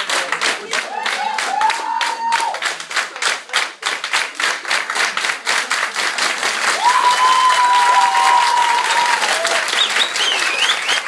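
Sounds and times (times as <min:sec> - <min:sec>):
audience clapping: 0:00.0 - 0:11.0
high cheering voice: 0:00.8 - 0:02.6, 0:06.7 - 0:10.6.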